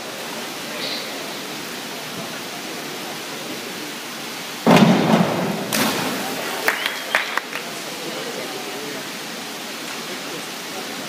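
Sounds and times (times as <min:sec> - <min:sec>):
indoor pool hall hiss: 0:00.0 - 0:11.0
divers splashing into water: 0:04.6 - 0:08.0.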